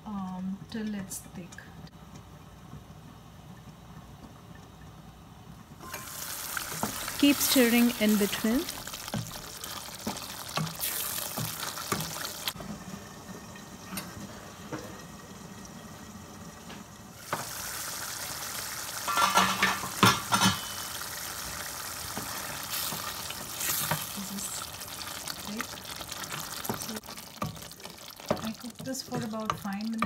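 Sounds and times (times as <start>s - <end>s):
sauce sizzling and bubbling: 2.0s - 30.0s
pot lid clattering: 19.0s - 20.8s
wooden spoon stirring: 22.2s - 30.0s.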